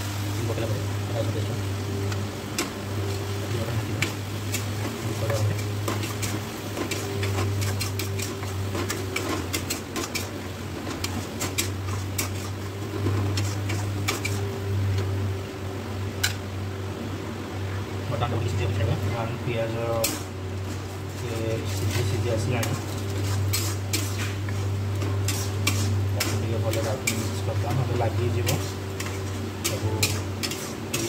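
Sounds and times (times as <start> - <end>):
food frying in oil: 0.0 - 31.0
spatula scraping a pan: 2.0 - 14.6, 19.9 - 31.0.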